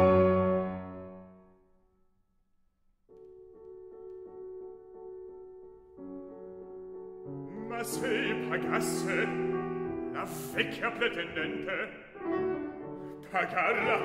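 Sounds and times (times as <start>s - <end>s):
piano playing held chords: 3.2s - 14.0s
baritone voice singing: 7.5s - 12.2s, 13.2s - 14.0s.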